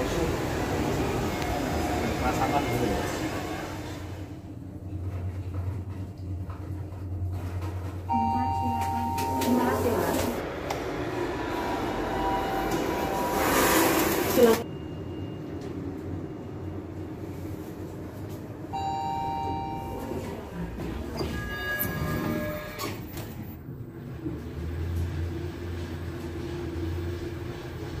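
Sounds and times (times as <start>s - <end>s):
lift machinery hum: 0.0s - 28.0s
elevator arrival chimes: 8.0s - 10.4s, 11.4s - 16.3s, 18.7s - 22.8s.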